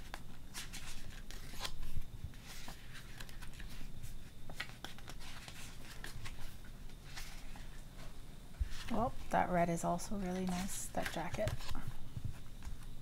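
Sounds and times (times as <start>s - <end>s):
pages being flipped: 0.0s - 7.8s, 10.4s - 12.9s.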